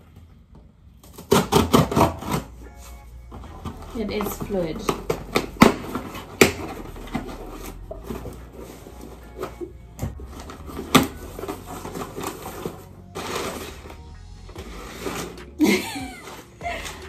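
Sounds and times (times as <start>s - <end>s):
scissors cutting packing tape: 1.0s - 2.6s, 3.7s - 8.4s, 9.4s - 14.0s
packing paper rustling: 1.0s - 17.0s.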